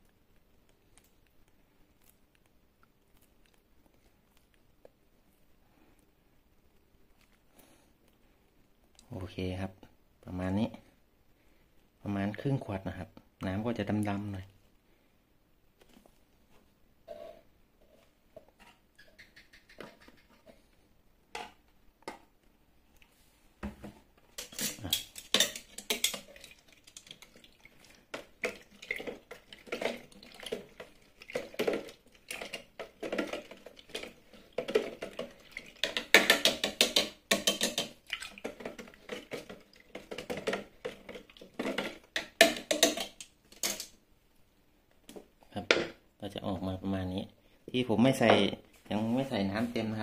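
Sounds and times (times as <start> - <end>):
fruit sloshing and squelching: 25.8 - 36.1.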